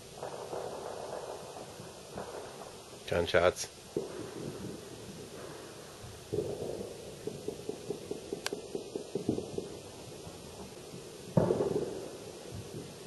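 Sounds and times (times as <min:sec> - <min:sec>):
distant gunfire pops: 0:03.9 - 0:04.8, 0:06.3 - 0:10.8, 0:11.4 - 0:13.0.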